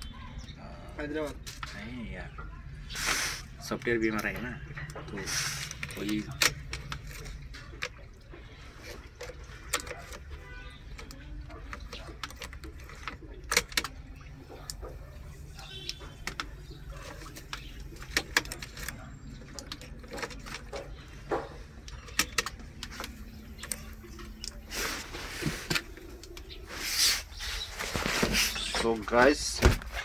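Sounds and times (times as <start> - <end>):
sharp clicks and knocks: 9.2 - 24.6.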